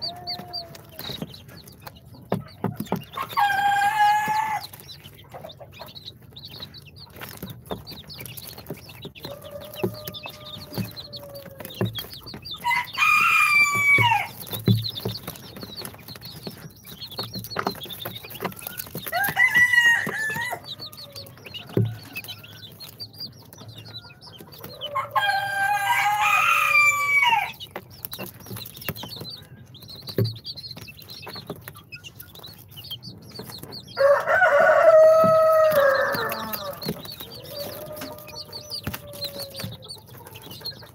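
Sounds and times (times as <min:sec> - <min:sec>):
chickens calling: 0:00.0 - 0:40.9
high peeping: 0:00.0 - 0:40.9.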